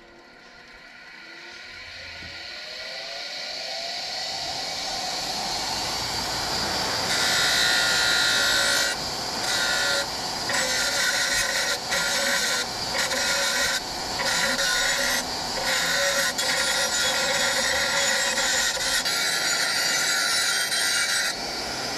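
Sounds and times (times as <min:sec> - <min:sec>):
steel grinding on bench grinder: 0:06.4 - 0:21.9.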